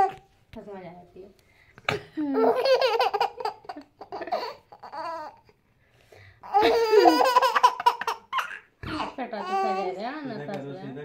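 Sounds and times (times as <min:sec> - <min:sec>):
baby laughing: 0:02.4 - 0:05.5, 0:06.4 - 0:09.9.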